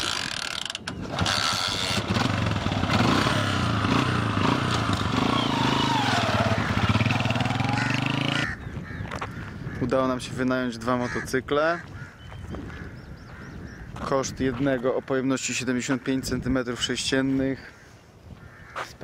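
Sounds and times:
motorcycle engine running: 0.9 - 8.6.

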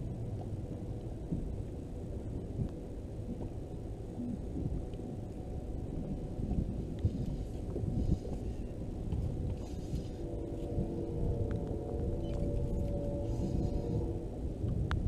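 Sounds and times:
wind on microphone: 0.0 - 15.0
water against boat hull: 4.2 - 15.0.

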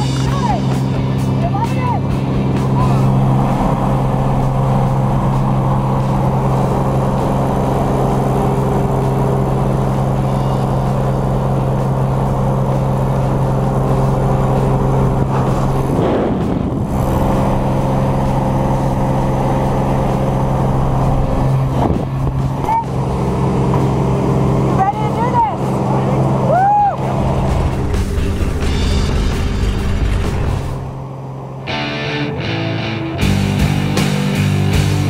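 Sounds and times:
propeller plane engine droning: 0.0 - 35.0
wind rushing: 13.6 - 24.7, 25.7 - 31.5.

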